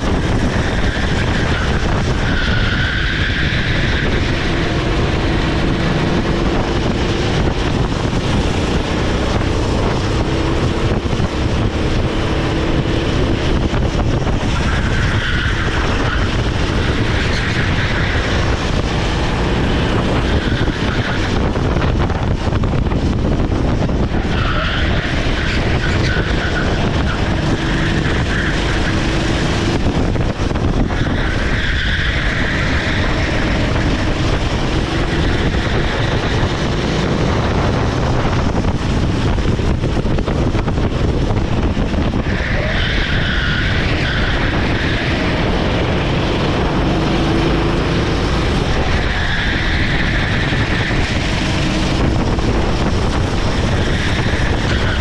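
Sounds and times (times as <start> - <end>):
kart engine running hard: 0.0 - 55.0
tyres squealing: 24.1 - 29.8, 42.1 - 52.0.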